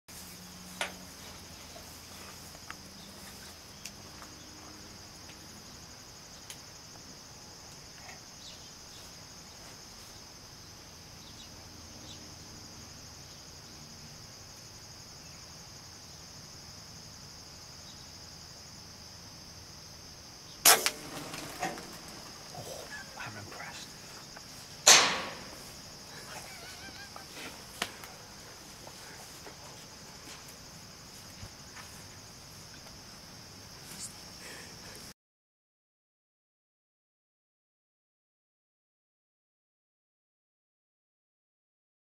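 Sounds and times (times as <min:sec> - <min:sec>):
high-pitched insect chorus: 0:00.1 - 0:35.1
air rifle shot with ringing tail: 0:20.6 - 0:21.8, 0:24.8 - 0:25.6.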